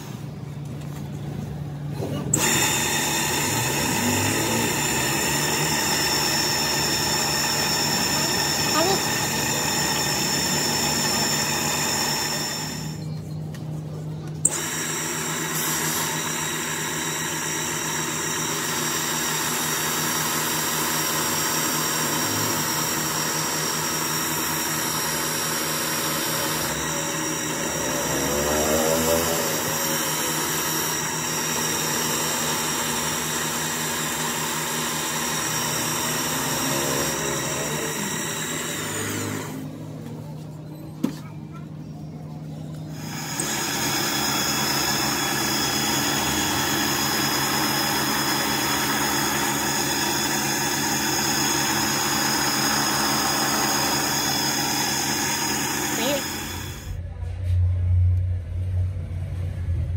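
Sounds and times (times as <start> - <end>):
polishing motor whining: 2.0 - 13.2, 14.3 - 40.6, 42.5 - 57.0
wheel grinding against steel: 14.4 - 39.9.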